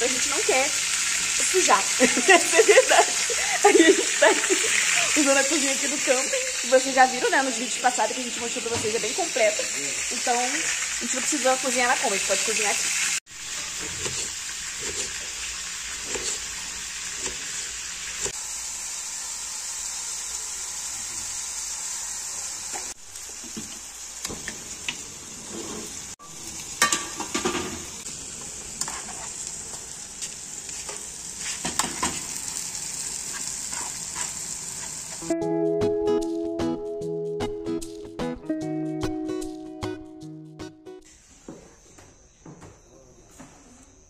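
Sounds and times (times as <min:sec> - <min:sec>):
meat and onion sizzling in pan: 0:00.0 - 0:35.6.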